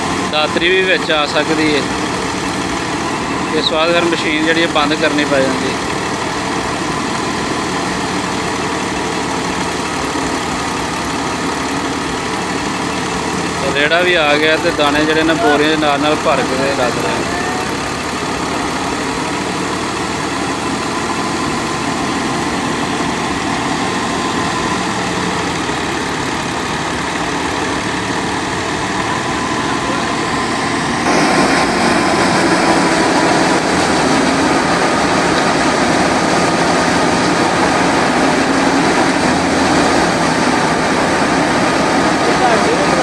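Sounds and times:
wheat thresher running: 0:00.0 - 0:43.0.

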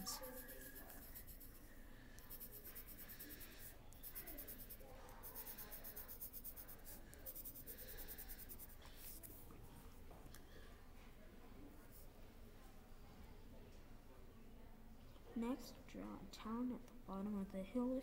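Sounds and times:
pencil scribbling on paper: 0:00.0 - 0:09.4.

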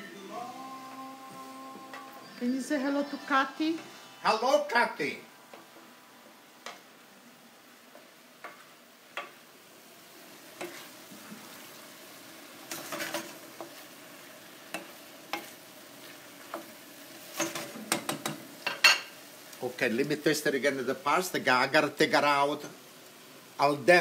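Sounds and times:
faint steady sizzle: 0:00.0 - 0:24.0
wooden spoon stirring vegetables: 0:07.9 - 0:09.5, 0:10.2 - 0:23.2
spoon knocking against pan: 0:09.2 - 0:09.4, 0:17.4 - 0:19.1.

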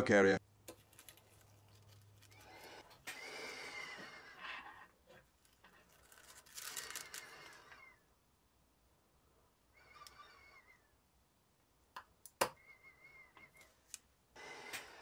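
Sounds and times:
rustling tissue paper: 0:05.2 - 0:07.9.

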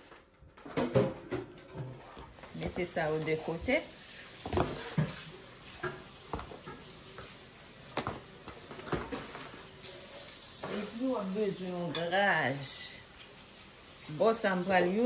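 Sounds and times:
kitchen items knocking on counter: 0:00.6 - 0:01.6
woman speaking: 0:02.5 - 0:04.0, 0:10.7 - 0:13.0, 0:14.1 - 0:15.0.

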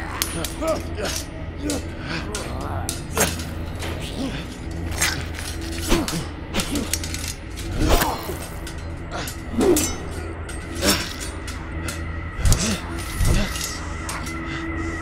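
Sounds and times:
blade strikes: 0:00.0 - 0:14.4
low music drone: 0:00.0 - 0:15.0.

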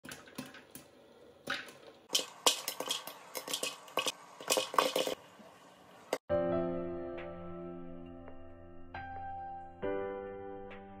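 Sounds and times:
popcorn popping: 0:00.0 - 0:05.2.

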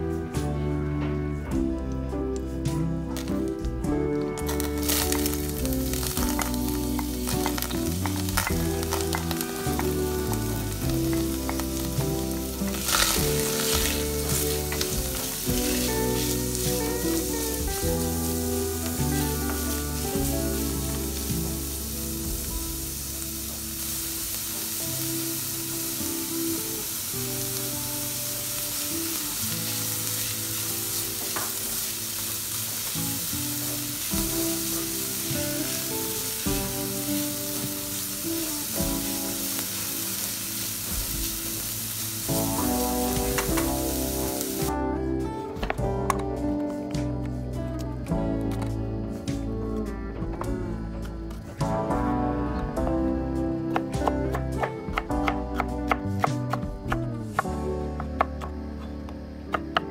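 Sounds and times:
background music: 0:00.0 - 0:59.9
onion sizzling in oil: 0:04.3 - 0:44.8.

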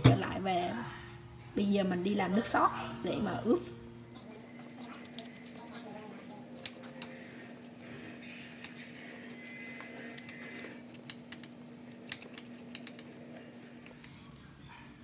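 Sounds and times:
spoon scraping ginger root: 0:04.4 - 0:14.5.

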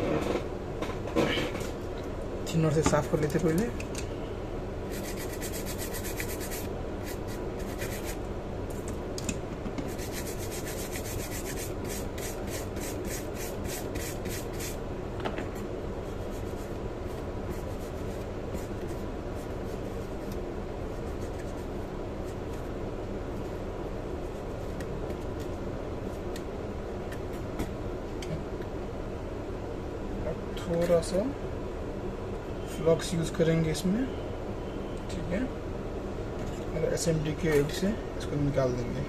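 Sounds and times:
small brush scrubbing circuit board: 0:04.9 - 0:08.2, 0:09.9 - 0:14.8.

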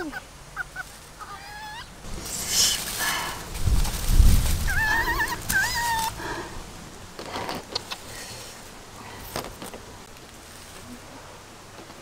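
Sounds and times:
chicken squawking: 0:00.0 - 0:02.0, 0:04.6 - 0:06.3
faint rustles and clicks of handling: 0:07.1 - 0:12.0.

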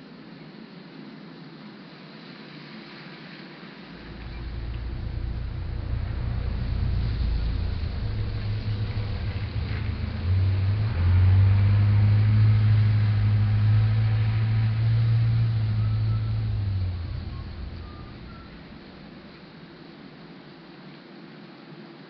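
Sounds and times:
steady hiss: 0:00.0 - 0:22.0
vehicle engine humming: 0:04.0 - 0:19.6.

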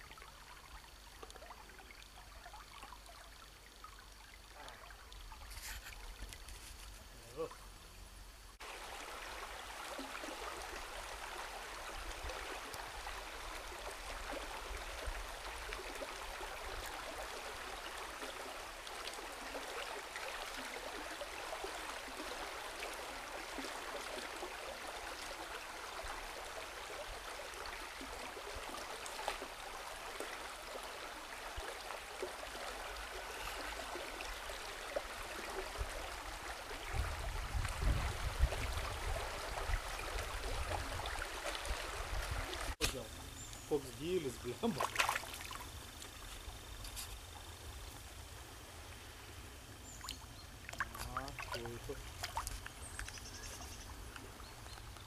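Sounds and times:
stream water running: 0:00.0 - 0:55.0.

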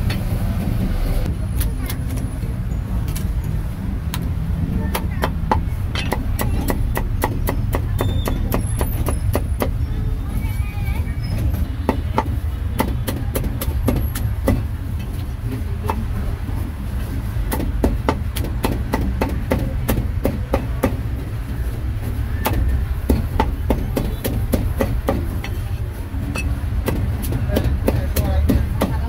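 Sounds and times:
cleaver chopping meat on board: 0:04.9 - 0:09.8, 0:11.8 - 0:14.7, 0:17.5 - 0:21.1, 0:22.4 - 0:25.4, 0:26.8 - 0:29.0.

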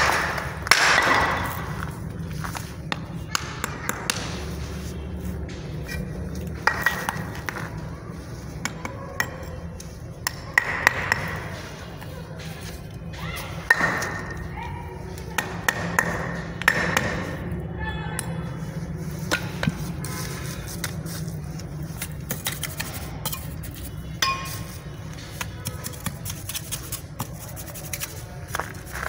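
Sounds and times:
trowel clinking on bricks: 0:22.0 - 0:29.0.

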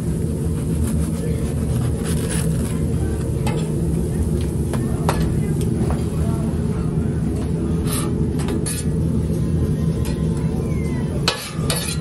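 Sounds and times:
low background rumble: 0:00.0 - 0:12.0
crackling crust scrapes: 0:00.4 - 0:03.3.

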